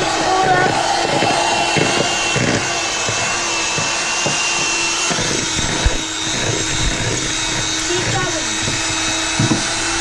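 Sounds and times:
beaters knocking plastic bowl: 0.0 - 10.0
electric hand mixer whining: 0.0 - 10.0.

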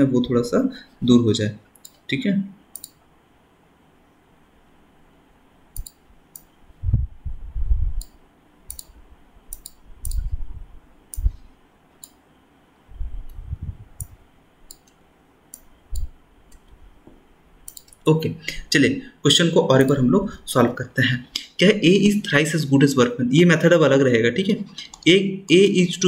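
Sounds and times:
computer mouse clicks: 1.8 - 2.0, 2.7 - 3.0, 5.7 - 6.5, 8.0 - 10.3, 11.1 - 11.3, 12.0 - 12.2, 14.0 - 16.8, 17.6 - 18.0, 19.8 - 20.0
dull low thumps: 6.8 - 8.0.

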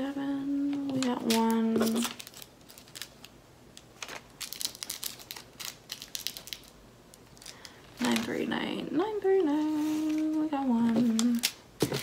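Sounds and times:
plastic bags crinkling: 0.7 - 8.5.

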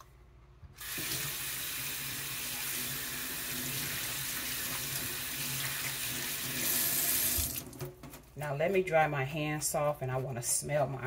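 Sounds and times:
faucet running into sink: 0.8 - 7.8.

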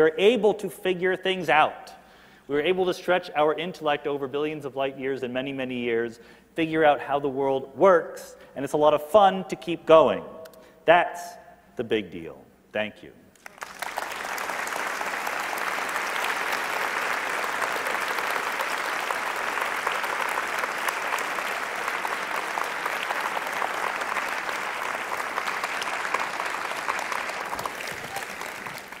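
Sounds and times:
audience applauding: 13.4 - 29.0.

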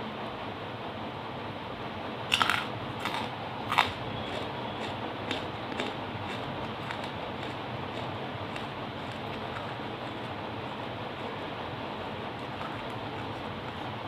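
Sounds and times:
coal crunching being eaten: 2.3 - 11.6, 12.3 - 14.0.

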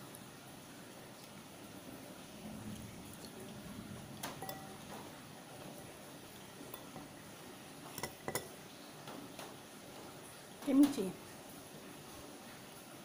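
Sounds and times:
utensils clinking on ceramic bowl: 4.2 - 5.0, 6.6 - 7.1, 7.9 - 8.6.

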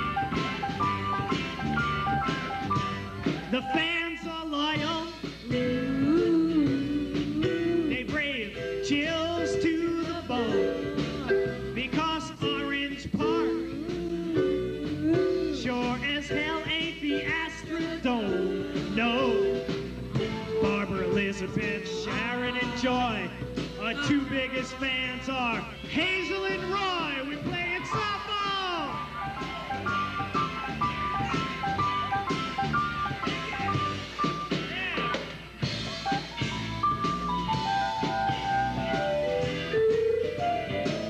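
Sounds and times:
electric guitars: 0.0 - 3.8, 5.2 - 41.0
sliding bending lead melody: 0.0 - 4.0, 5.3 - 34.8, 35.6 - 41.0
drum kit: 0.0 - 41.0
keyboard: 0.0 - 41.0.

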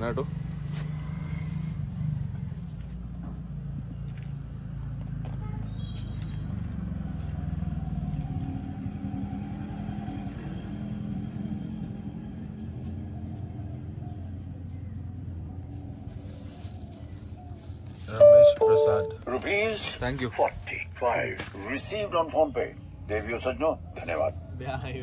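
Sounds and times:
vehicle engine humming: 0.0 - 24.3.

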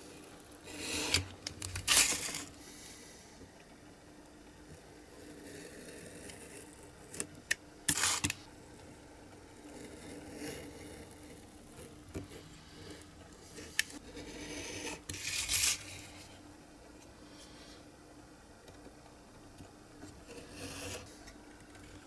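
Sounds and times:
knife cutting card scratchily: 7.9 - 8.4.

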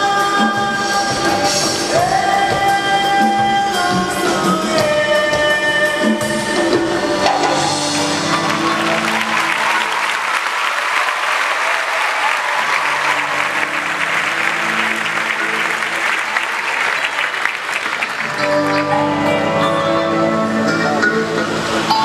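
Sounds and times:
show music: 0.0 - 22.0
audience applauding: 7.2 - 19.7.

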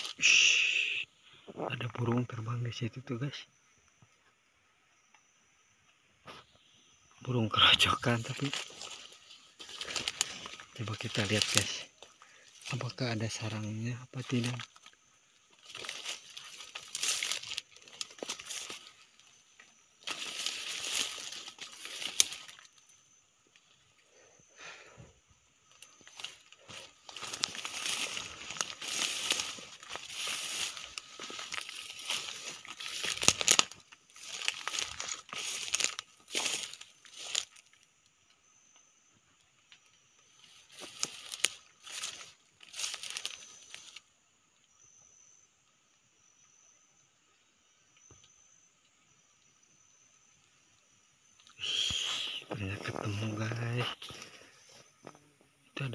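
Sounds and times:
leaves and stems rustling: 7.3 - 24.8, 25.4 - 37.9, 39.6 - 44.1
twigs snapping: 8.4 - 12.8, 14.3 - 22.9, 25.6 - 37.7, 40.7 - 44.0.

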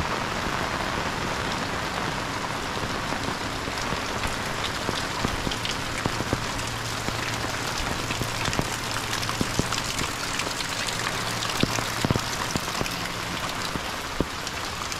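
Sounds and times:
heavy rain hiss: 0.0 - 14.9
raindrop taps: 3.7 - 14.9.

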